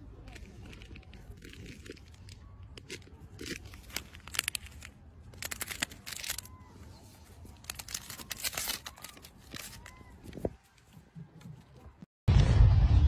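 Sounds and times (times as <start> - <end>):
plastic wrapper crinkling: 0.2 - 10.6.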